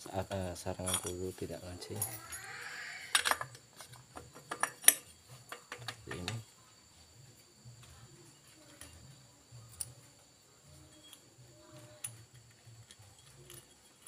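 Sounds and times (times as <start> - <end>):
metal parts clinking: 0.8 - 1.3, 1.9 - 6.4, 12.0 - 14.0.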